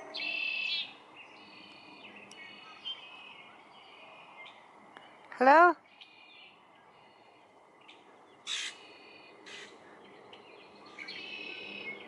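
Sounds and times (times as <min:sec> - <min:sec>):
harsh bird calls: 0:00.0 - 0:05.2, 0:05.8 - 0:12.0
high bird chirping: 0:00.1 - 0:04.6.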